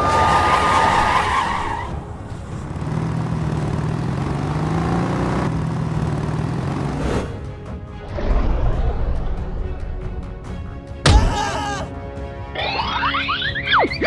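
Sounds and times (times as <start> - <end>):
car tyres squealing: 0.0 - 4.9
vehicle engine accelerating: 1.9 - 7.6.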